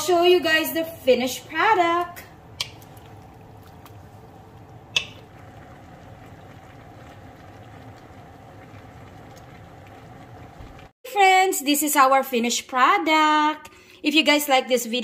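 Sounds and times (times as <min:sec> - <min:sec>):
sauce bubbling in a wok: 0:02.2 - 0:11.0.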